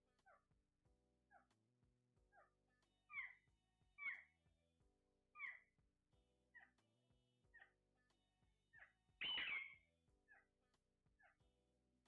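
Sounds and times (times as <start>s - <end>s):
faint background music: 0.0s - 12.0s
parakeet screech: 9.2s - 9.8s
parakeets squawking: 9.2s - 9.8s.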